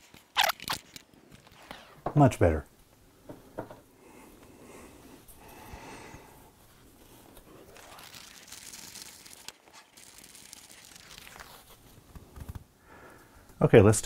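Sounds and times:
small knocks: 0:03.3 - 0:03.8
crinkling and rustling of wrapping: 0:06.6 - 0:12.7.

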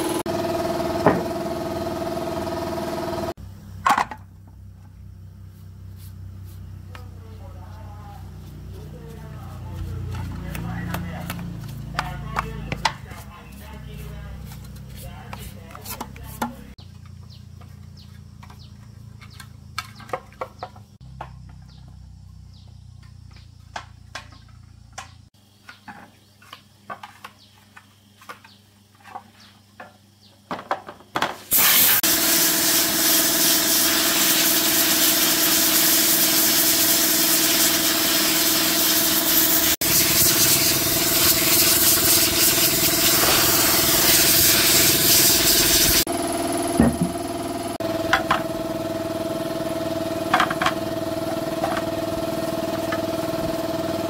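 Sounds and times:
machine running with hiss: 0:31.4 - 0:54.0.

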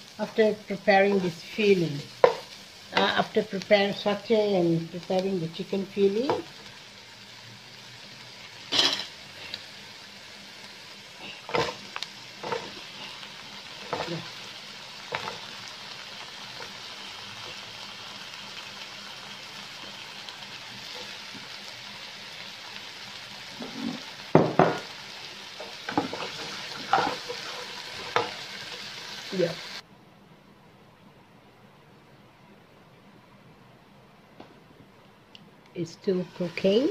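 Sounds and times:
onion sizzling in a wok: 0:00.0 - 0:29.8, 0:35.8 - 0:36.9
wooden spatula scraping a pan: 0:25.6 - 0:28.9.

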